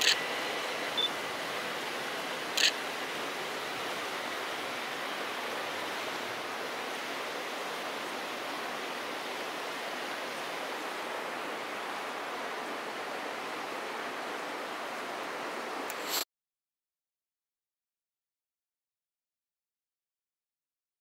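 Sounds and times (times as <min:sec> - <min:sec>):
steady rushing noise: 0:00.0 - 0:16.2.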